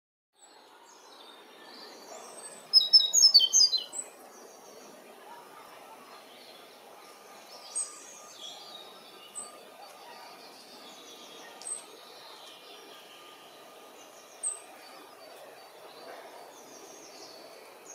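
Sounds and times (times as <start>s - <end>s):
steady background noise: 0.6s - 17.9s
robin singing: 0.9s - 4.6s.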